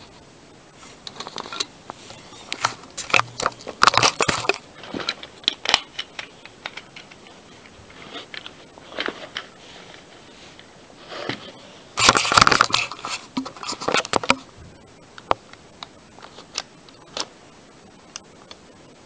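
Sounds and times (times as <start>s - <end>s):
sharp plastic clicks and rattles: 2.5s - 9.5s.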